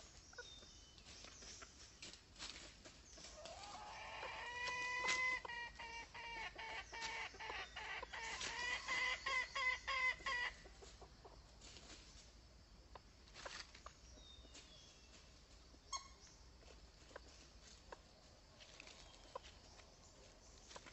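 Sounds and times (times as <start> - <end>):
hen clucking: 3.2 - 11.6.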